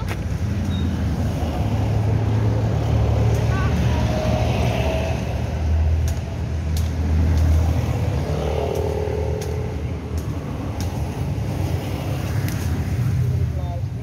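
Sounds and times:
truck engine rumble: 0.0 - 14.0.

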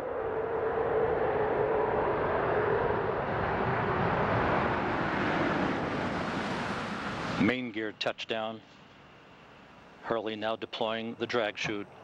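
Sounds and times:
steady rushing noise: 0.0 - 8.9.

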